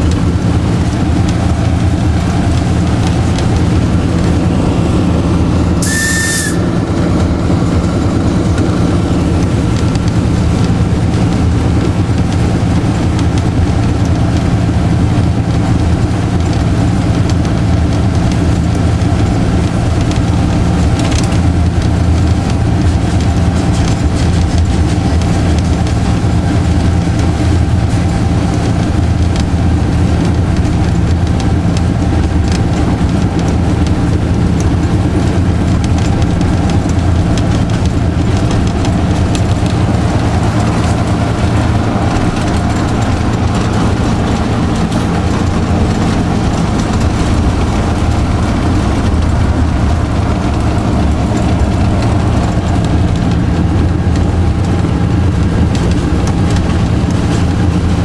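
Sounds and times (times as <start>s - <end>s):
diesel locomotive engine drone: 0.0s - 58.0s.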